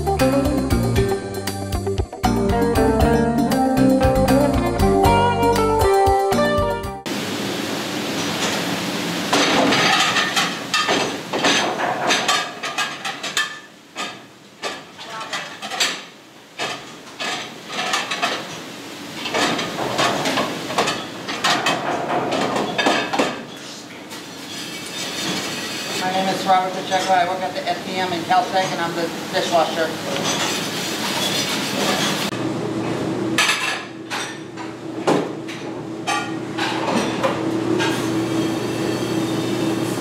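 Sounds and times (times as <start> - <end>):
ceramic plates clattering: 9.5 - 16.0.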